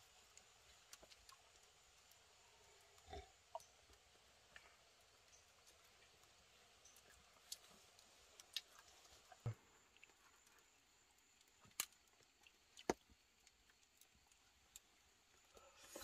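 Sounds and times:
sharp clicks and pops: 0:11.2 - 0:14.9.

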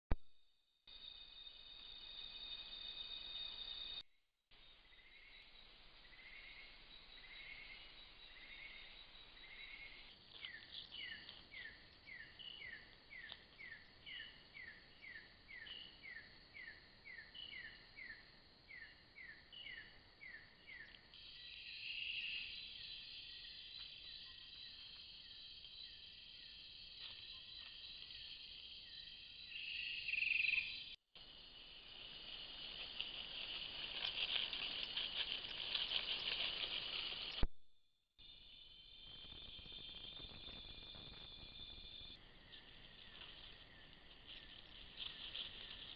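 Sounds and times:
insects trilling: 0:00.9 - 0:04.0, 0:04.6 - 0:37.4, 0:38.2 - 0:45.9.

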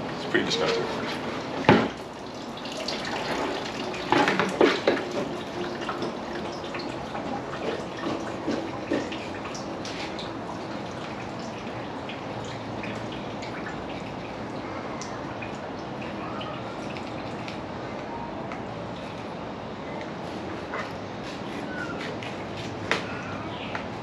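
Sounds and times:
hose water trickling into sink: 0:01.9 - 0:17.7
small water drips: 0:02.1 - 0:19.3.

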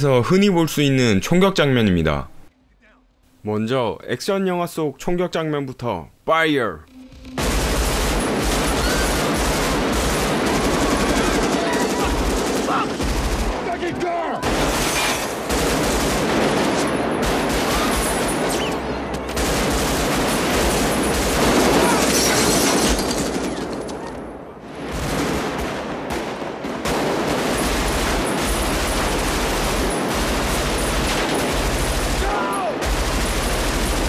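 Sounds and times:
automatic rifle fire: 0:07.4 - 0:13.8, 0:14.4 - 0:18.6, 0:24.9 - 0:34.0
pistol shots: 0:24.9 - 0:34.0.

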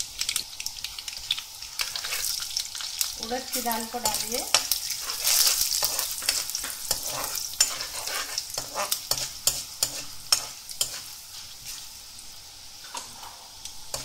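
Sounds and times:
lentils sizzling in hot oil: 0:00.0 - 0:14.0
spatula scraping a pan: 0:01.8 - 0:02.4, 0:03.9 - 0:12.0, 0:12.8 - 0:14.0.

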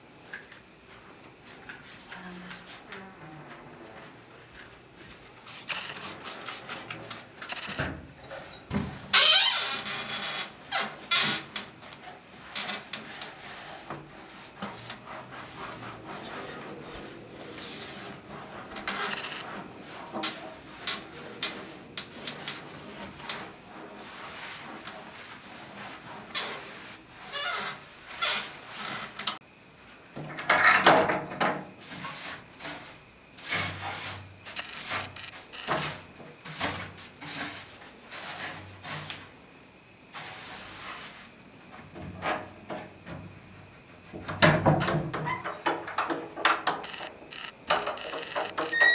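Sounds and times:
cloth wiping wooden window frame: 0:12.1 - 0:29.0.

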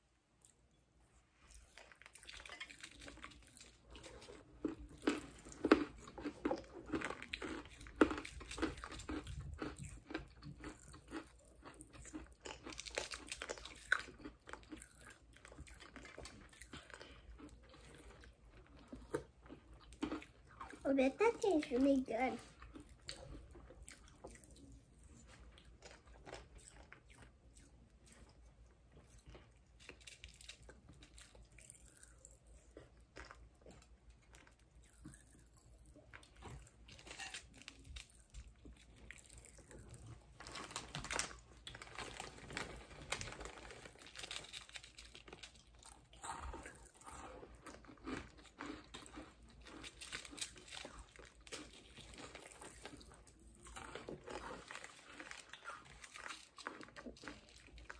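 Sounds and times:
candy being chewed and crunched: 0:00.0 - 0:57.9
candy wrapper crinkling: 0:36.8 - 0:46.1.

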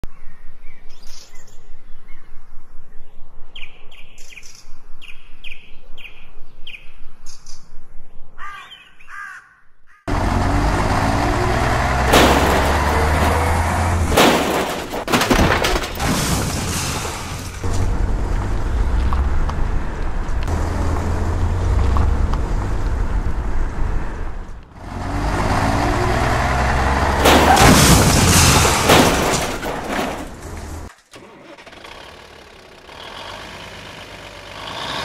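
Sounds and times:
birds calling: 0:08.4 - 0:10.1
sharp crashes: 0:11.8 - 0:17.8, 0:27.1 - 0:30.9.

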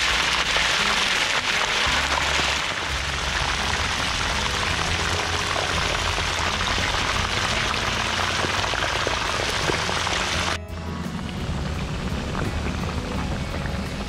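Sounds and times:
deep-frying oil sizzling: 0:00.0 - 0:10.6.

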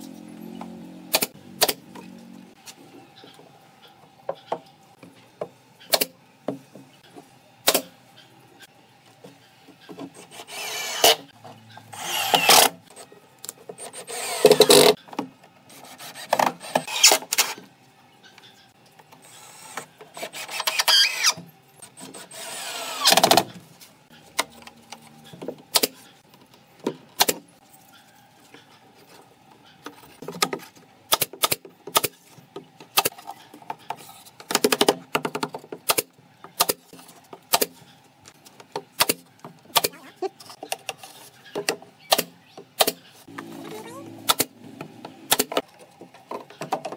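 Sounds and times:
cordless drill driving screws: 0:10.3 - 0:11.2, 0:12.0 - 0:12.7, 0:13.8 - 0:14.9, 0:22.2 - 0:23.4.

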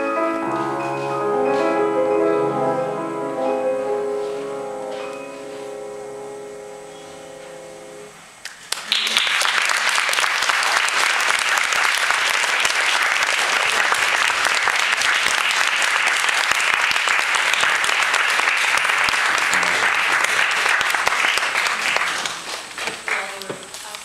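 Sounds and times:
piano duet chord: 0:00.0 - 0:08.2
audience applause: 0:08.5 - 0:23.4.

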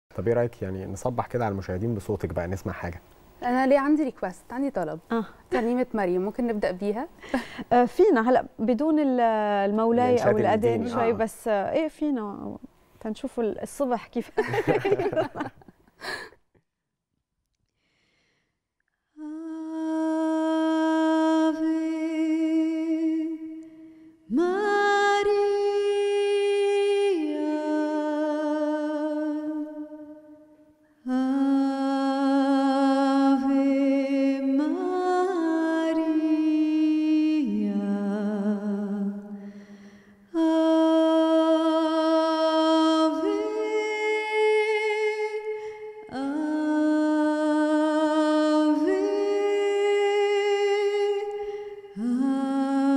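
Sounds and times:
woman singing a hymn: 0:13.4 - 0:15.6, 0:19.2 - 0:23.6, 0:24.3 - 0:30.1, 0:31.0 - 0:39.4, 0:40.3 - 0:52.9.

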